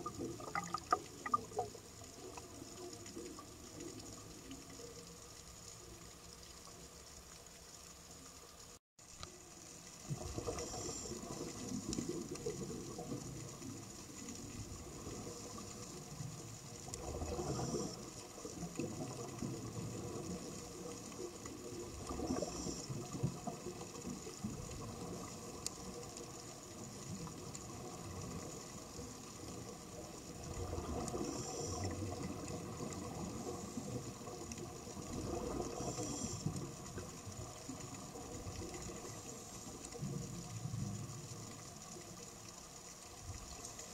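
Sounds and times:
exhaled bubbles gurgling: 0.0s - 5.2s, 9.8s - 43.9s
regulator hiss on inhale: 10.4s - 11.8s, 17.3s - 18.5s, 22.1s - 23.5s, 30.9s - 32.3s, 35.5s - 37.0s.

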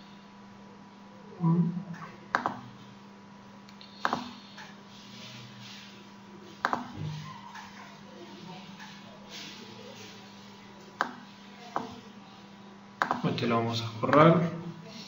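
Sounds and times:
faint electrical hum: 0.0s - 15.0s
computer mouse clicks: 2.3s - 2.6s, 3.7s - 4.7s, 6.6s - 6.9s, 13.0s - 13.2s.

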